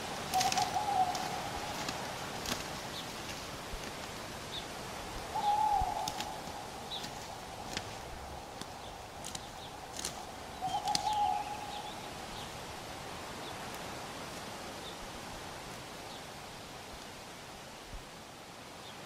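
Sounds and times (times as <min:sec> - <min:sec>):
low bird call: 0:00.0 - 0:03.4, 0:04.5 - 0:12.8
birds chirping: 0:00.0 - 0:13.9.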